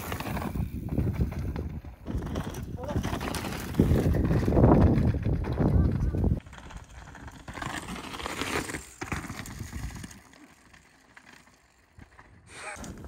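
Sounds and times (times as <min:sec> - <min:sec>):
bike knocks and rattles: 0:00.0 - 0:13.0
bike tyres on stony ground: 0:00.0 - 0:13.0.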